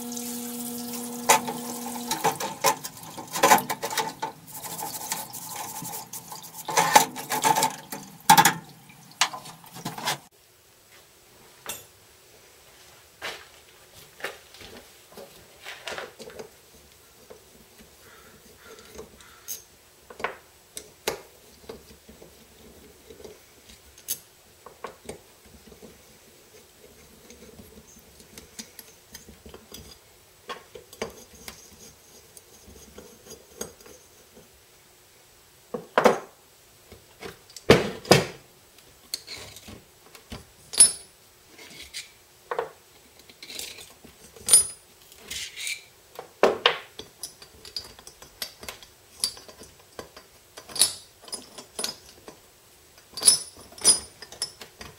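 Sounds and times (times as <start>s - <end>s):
liquid running: 0.0s - 10.1s.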